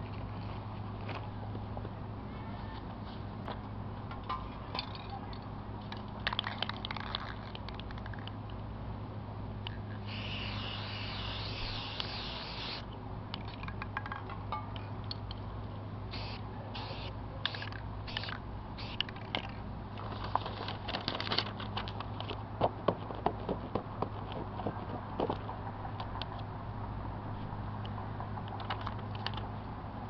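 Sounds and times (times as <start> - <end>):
spray paint can hissing: 10.0 - 12.9, 16.1 - 19.3.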